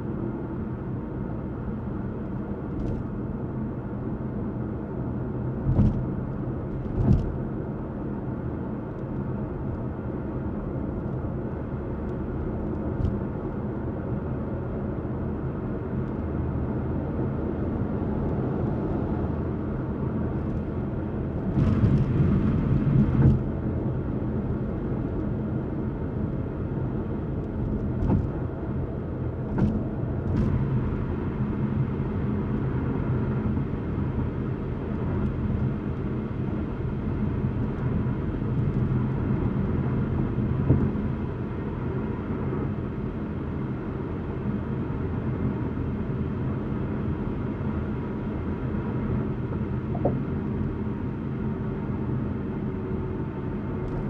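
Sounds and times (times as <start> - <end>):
car tyres rumbling: 17.5 - 26.2, 27.0 - 44.3, 46.7 - 54.0
wind noise: 20.5 - 23.6
short thumps: 49.9 - 50.3.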